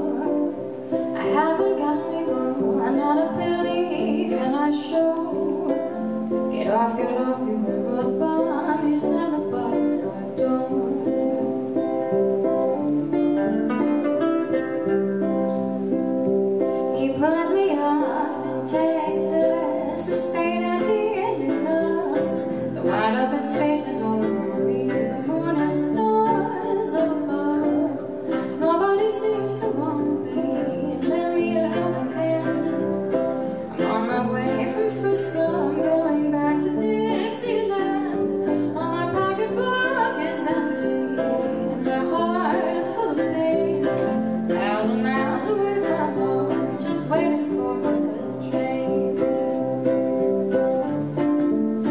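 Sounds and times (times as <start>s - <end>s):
plucked ukulele chords: 0.0s - 51.9s
woman singing: 0.0s - 51.9s.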